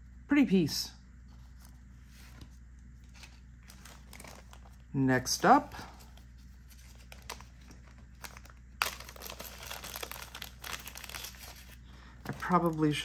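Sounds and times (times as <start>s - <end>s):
plastic bag crinkling: 3.1s - 5.0s, 5.8s - 13.0s.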